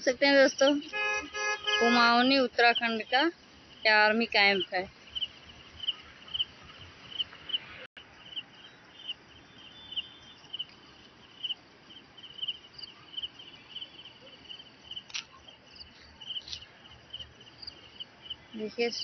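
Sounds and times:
crickets chirping: 0.0s - 19.0s
faint outdoor hiss: 0.0s - 19.0s.

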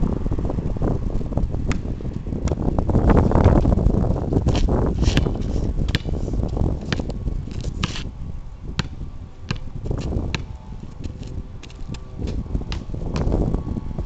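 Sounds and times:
wind rumbling on microphone: 0.0s - 14.0s
basketball bouncing on asphalt: 1.6s - 8.1s, 8.7s - 13.8s.

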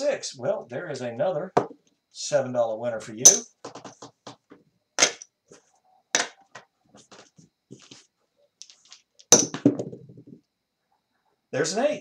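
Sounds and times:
sharp chip clinks: 3.3s - 3.5s.

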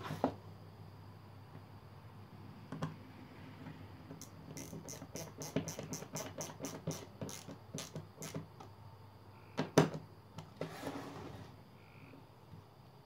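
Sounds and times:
screwdriver clicking: 4.2s - 8.4s
scraping rustle: 10.6s - 11.6s.

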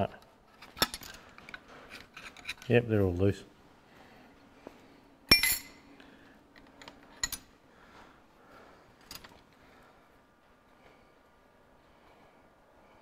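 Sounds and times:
spanner clinking on metal: 5.3s - 5.8s, 6.6s - 7.5s.

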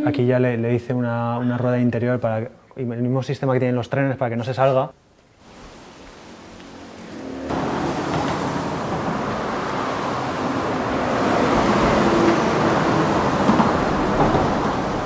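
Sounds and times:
loud rushing noise: 5.5s - 15.0s.

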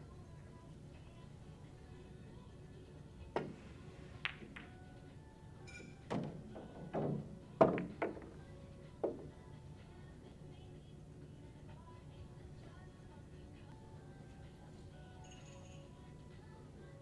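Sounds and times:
pool balls clicking and knocking: 3.3s - 5.1s, 5.7s - 9.4s.

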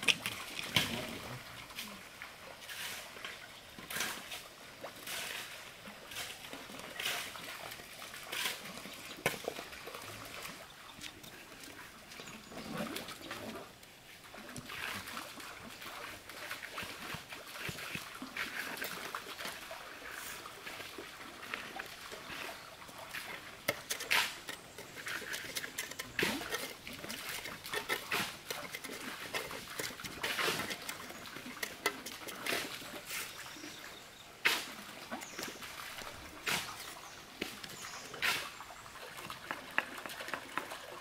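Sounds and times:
trowel scraping mortar: 23.6s - 33.4s.

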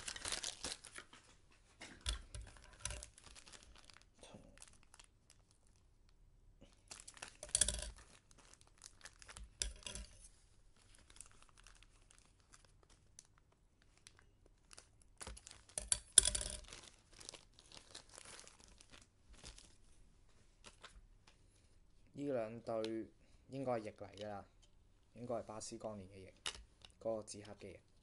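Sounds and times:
plastic crinkling: 0.0s - 5.9s, 6.6s - 19.9s, 20.6s - 21.4s.

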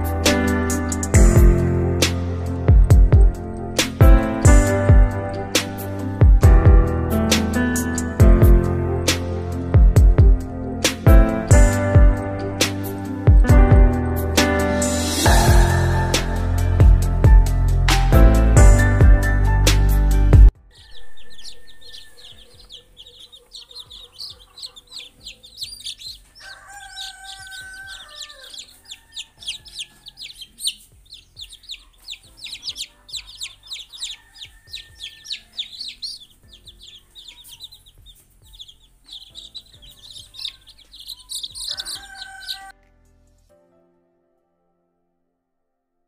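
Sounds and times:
chicks peeping: 20.6s - 42.7s
lower longer chick calls: 20.7s - 42.7s.

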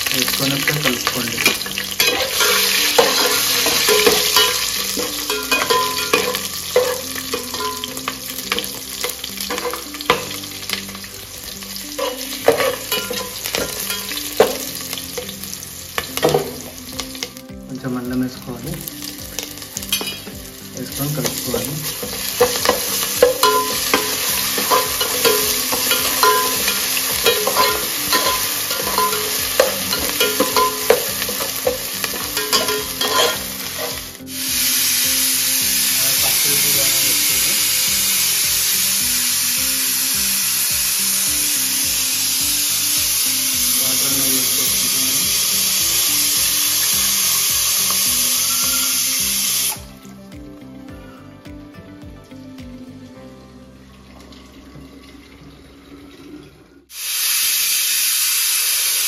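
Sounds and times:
spices sizzling in oil: 0.0s - 50.2s, 56.9s - 59.0s
water pouring into pot: 20.0s - 49.8s.

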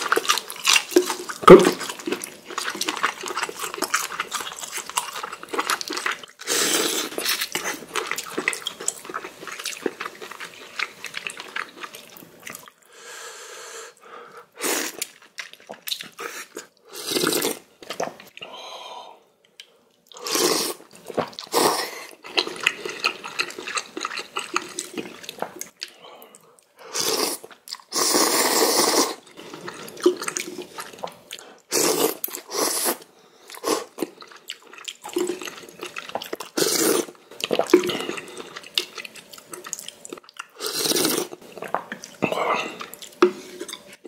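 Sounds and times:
wet chewing: 0.0s - 12.8s, 14.9s - 18.4s, 22.2s - 26.7s, 33.5s - 44.0s
loud noodle slurps: 6.4s - 8.0s, 16.1s - 17.6s, 20.2s - 23.0s, 26.9s - 30.8s, 31.7s - 33.0s, 36.5s - 38.2s, 40.6s - 41.4s.

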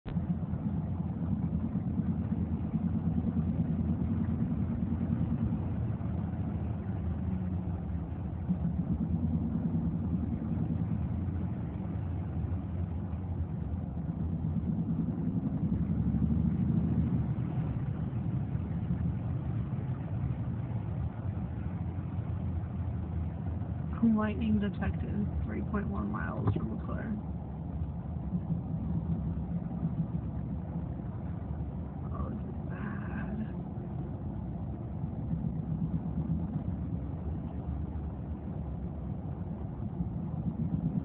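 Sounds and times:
car engine drone: 0.0s - 41.0s.

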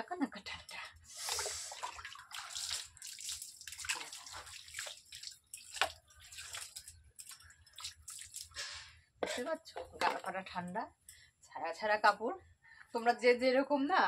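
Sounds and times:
water pouring and splashing on floor: 1.1s - 8.9s.

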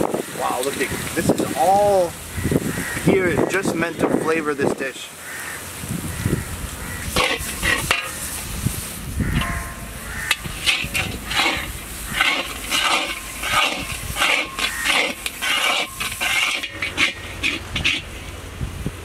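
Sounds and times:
spices sizzling in oil: 5.2s - 18.4s
metal spatula scraping a pan: 6.9s - 18.5s.

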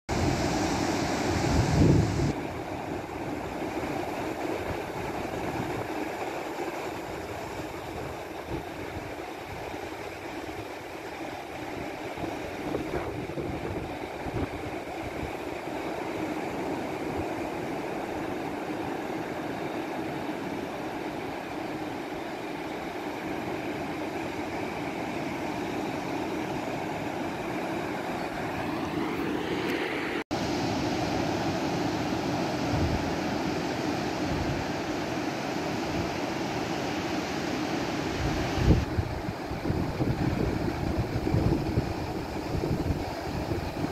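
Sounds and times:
wind gusting on microphone: 0.1s - 2.7s, 11.6s - 15.5s, 32.4s - 33.4s, 38.0s - 43.9s
distant ocean surf: 0.1s - 43.9s.

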